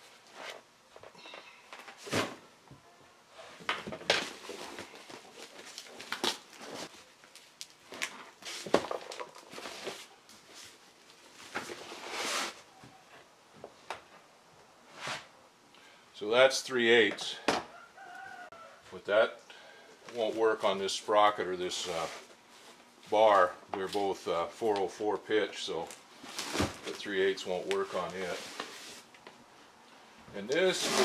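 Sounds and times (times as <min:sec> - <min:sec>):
cardboard scraping and rustling: 0:07.9 - 0:12.6, 0:26.2 - 0:27.1, 0:30.6 - 0:31.0.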